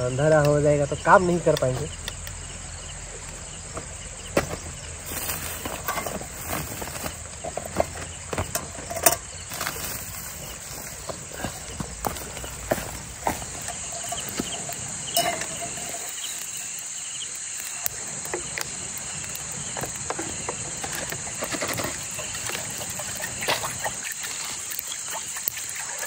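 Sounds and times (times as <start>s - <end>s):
insect drone: 0.0s - 26.0s
running creek: 0.0s - 26.0s
camp gear clicks and knocks: 3.7s - 16.8s, 19.4s - 23.8s.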